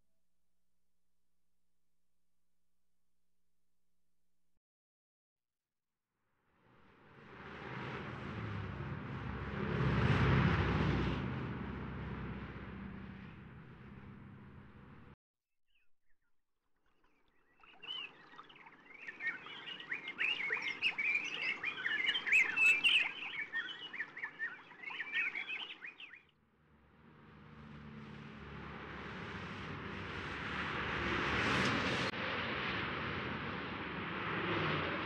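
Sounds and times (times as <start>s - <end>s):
steady rushing noise with low rumble: 6.6s - 15.2s, 26.6s - 35.0s
small songbirds chirping: 15.7s - 26.3s.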